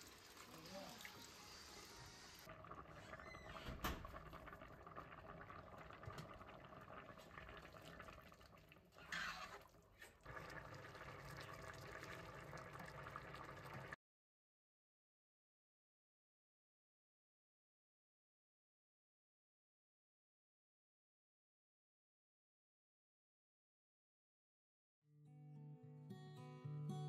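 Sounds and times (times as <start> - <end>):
water pouring into a pot: 0.0 - 14.0.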